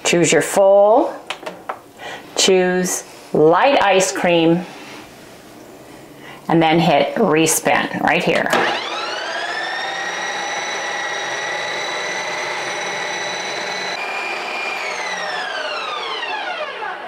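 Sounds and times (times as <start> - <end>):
ice cream maker motor whining: 8.5 - 17.0.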